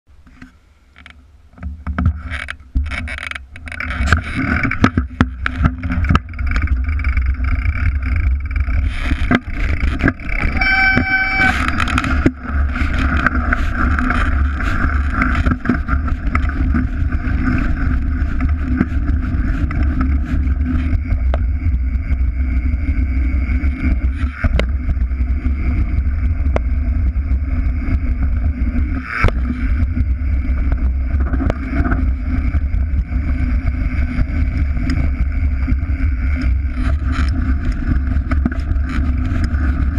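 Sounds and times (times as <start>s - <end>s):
wind on microphone: 1.5s - 39.9s
bike tyres rumbling on dirt: 1.6s - 39.9s
high squeal: 10.3s - 12.2s.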